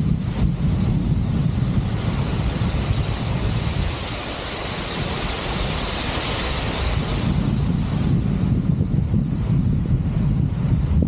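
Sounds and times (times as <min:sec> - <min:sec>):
wind buffeting microphone: 0:00.0 - 0:11.0
waterfall rushing: 0:00.1 - 0:08.9.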